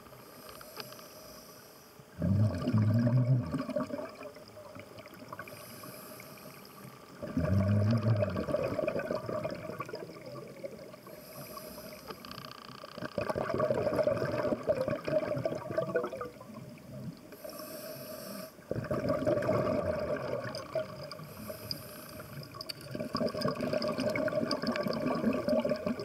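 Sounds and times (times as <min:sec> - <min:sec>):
regulator inhalation hiss: 0:00.2 - 0:02.1, 0:05.5 - 0:07.0, 0:11.0 - 0:12.4, 0:17.3 - 0:18.7, 0:21.2 - 0:22.6
bubbling exhalations underwater: 0:02.2 - 0:04.5, 0:07.2 - 0:11.0, 0:13.0 - 0:16.7, 0:18.7 - 0:21.1, 0:22.9 - 0:26.0.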